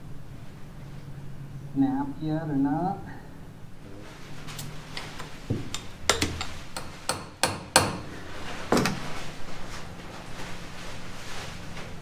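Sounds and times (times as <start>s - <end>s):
hammer striking metal wedge: 5.7s - 8.1s.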